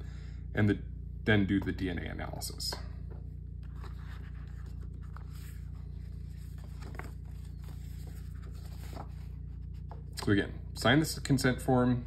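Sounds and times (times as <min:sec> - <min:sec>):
steady low hum: 0:00.0 - 0:12.0
paper rustling: 0:03.6 - 0:10.1.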